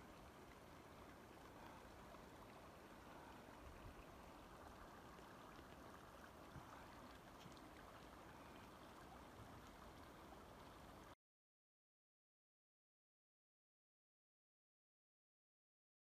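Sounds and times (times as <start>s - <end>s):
mountain stream rushing: 0.0s - 11.2s.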